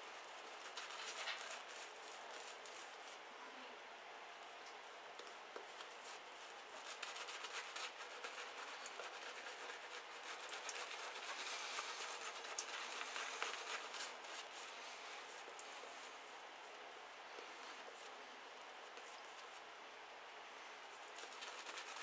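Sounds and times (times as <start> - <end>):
shaving brush swishing lather: 5.7 - 16.3, 21.0 - 22.0.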